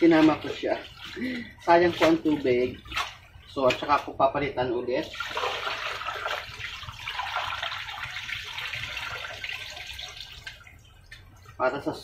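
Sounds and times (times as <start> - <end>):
water pouring into steel sink: 5.0 - 10.8.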